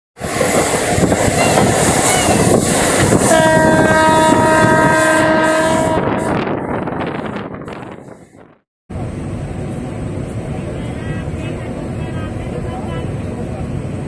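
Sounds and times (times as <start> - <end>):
train wheels rolling on rail: 0.2 - 14.0
locomotive horn blast: 3.1 - 6.8.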